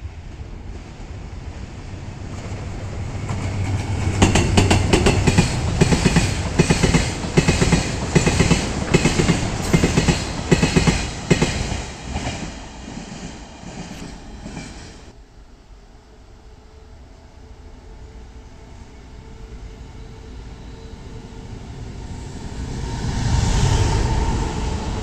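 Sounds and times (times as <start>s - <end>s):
wheels clacking over rail joints: 3.2s - 15.1s.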